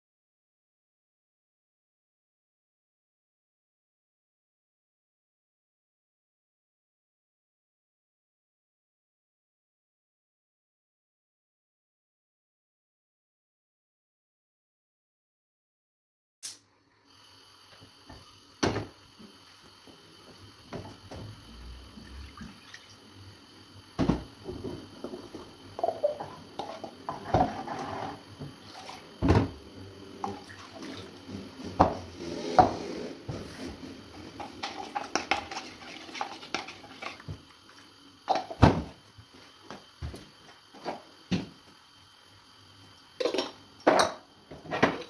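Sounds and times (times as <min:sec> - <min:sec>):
sink water running: 0:17.2 - 0:45.0
dishes and utensils clattering: 0:24.5 - 0:29.0, 0:34.4 - 0:37.3.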